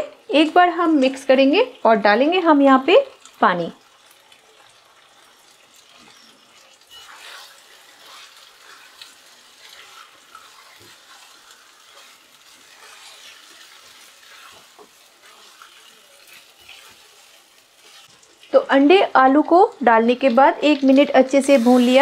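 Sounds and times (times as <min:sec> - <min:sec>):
faint sizzle: 0:00.0 - 0:22.0
spatula scraping a pan: 0:05.2 - 0:18.6, 0:21.1 - 0:22.0.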